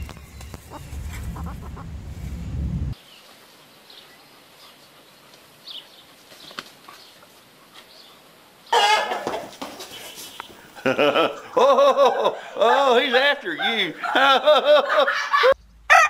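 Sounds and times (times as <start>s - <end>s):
chicken squawking: 0.0s - 2.0s, 8.8s - 9.3s, 13.6s - 14.1s
wind rumble on microphone: 0.0s - 3.0s.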